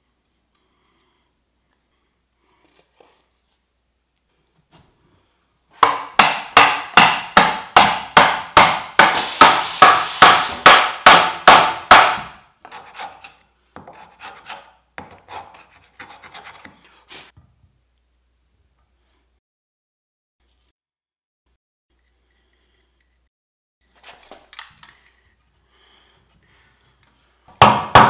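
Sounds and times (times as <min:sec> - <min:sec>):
hand tool rasping wood: 0:05.8 - 0:16.8
scraping and tapping on wood: 0:12.6 - 0:16.9.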